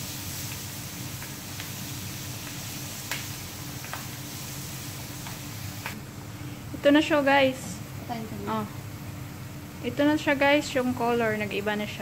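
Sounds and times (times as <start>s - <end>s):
onions sizzling in oil: 0.0s - 6.0s.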